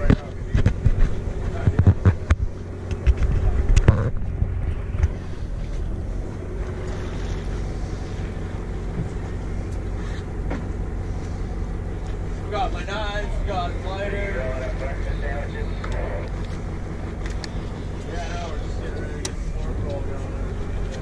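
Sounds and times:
wind buffeting microphone: 0.0 - 6.6
boat motor running: 0.0 - 21.0.

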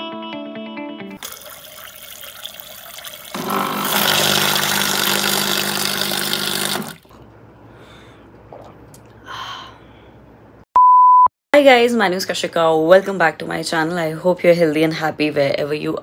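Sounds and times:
water pouring into a glass: 1.2 - 7.2
drink machine pump hum: 1.2 - 7.3.

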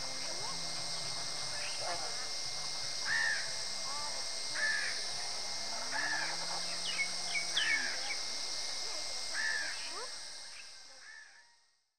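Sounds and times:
crows cawing: 3.1 - 3.5, 4.6 - 5.0, 9.4 - 9.8.

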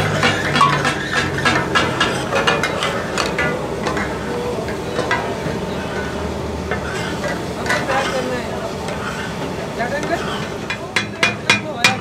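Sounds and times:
metal blades striking griddle: 0.0 - 6.1, 10.0 - 12.0
meat frying hiss: 0.0 - 12.0.

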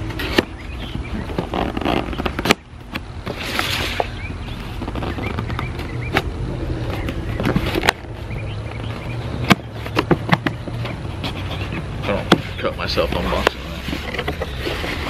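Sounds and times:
steady low rumble: 0.0 - 15.0
cardboard box clicks and knocks: 9.4 - 12.5.

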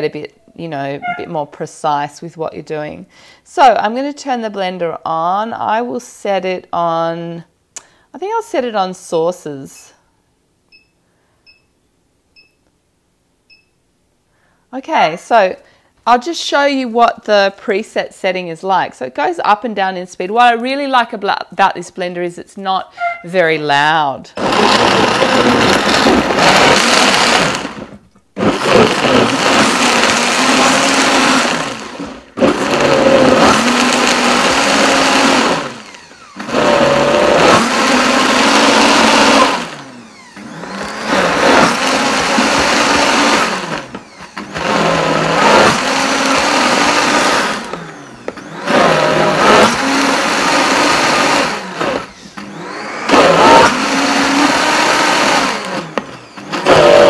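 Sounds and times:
blender motor running: 24.4 - 57.0.

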